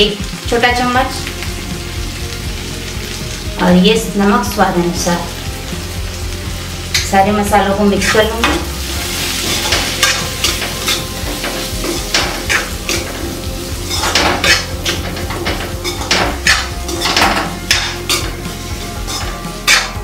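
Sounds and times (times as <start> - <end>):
frying sizzle in oil: 0.0 - 20.0
metal spatula scraping a pan: 8.0 - 20.0.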